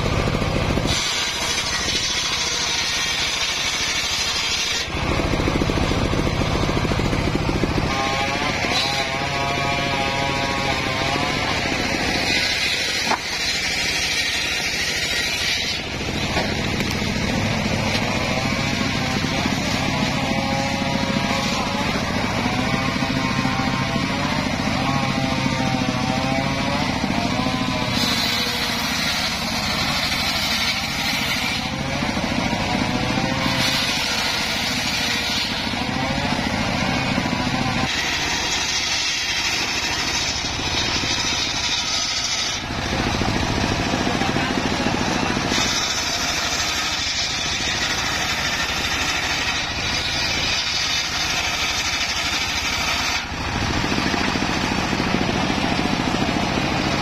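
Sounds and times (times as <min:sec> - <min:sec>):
circular saw ripping planks: 0:00.0 - 0:57.0.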